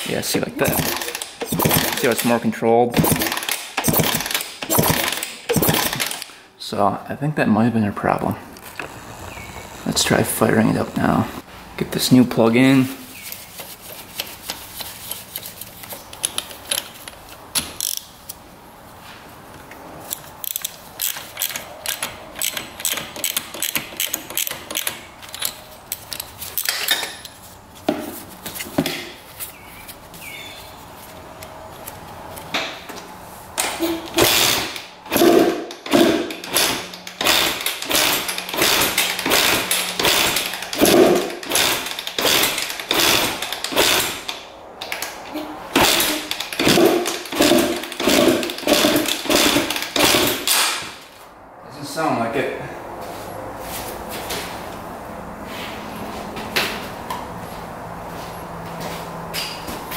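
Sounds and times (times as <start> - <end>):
ratchet wrench clicking: 0.6 - 2.3, 3.0 - 6.3, 20.4 - 27.0, 34.1 - 44.4, 45.8 - 50.6
motorcycle engine kick-start strokes: 0.6 - 6.3, 33.6 - 44.4, 45.7 - 50.8.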